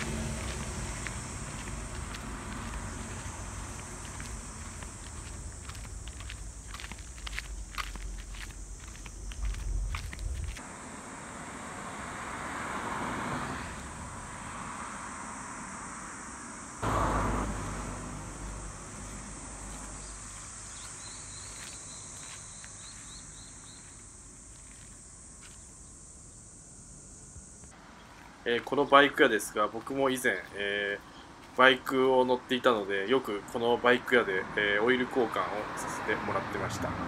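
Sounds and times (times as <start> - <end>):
low rumble: 0.0 - 10.6
high-pitched insect chorus: 0.0 - 27.8
traffic-like noise: 0.0 - 37.0.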